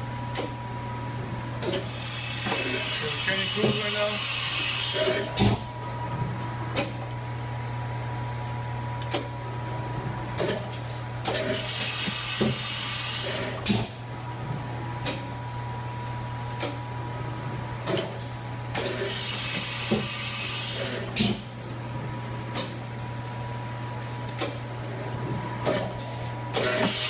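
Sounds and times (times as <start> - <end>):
machine spindle hum and whine: 0.0 - 27.0.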